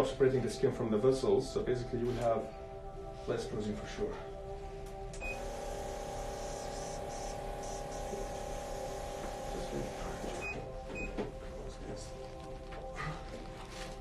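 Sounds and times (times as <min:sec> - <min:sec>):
vacuum pump humming: 0:05.1 - 0:11.5.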